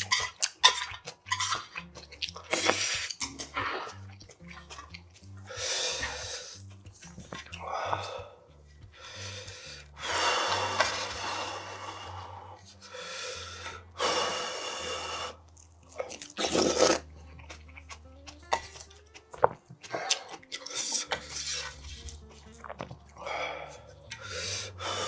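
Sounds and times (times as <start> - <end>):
slurping broth: 0.0 - 8.3, 9.0 - 25.0
chewing: 0.0 - 8.8, 15.5 - 24.4
quiet background music: 0.0 - 25.0.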